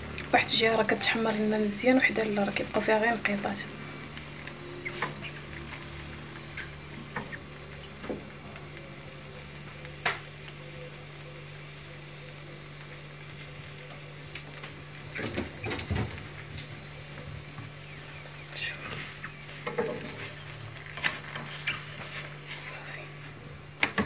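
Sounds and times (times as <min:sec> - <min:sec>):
crepe sizzling in a frying pan: 0:00.0 - 0:24.0.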